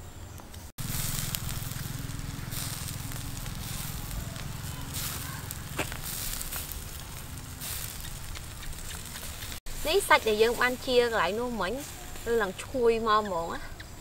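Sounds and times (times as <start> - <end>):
charcoal embers crackling: 0.3 - 14.0
sharp crack: 0.5 - 9.6
steady low rumble: 0.8 - 11.8
faint sizzle: 0.8 - 13.6.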